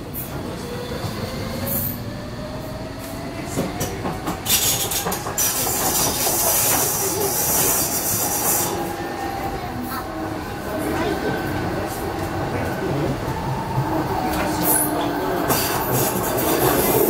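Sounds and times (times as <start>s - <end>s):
train wheels on rails: 0.0s - 17.0s.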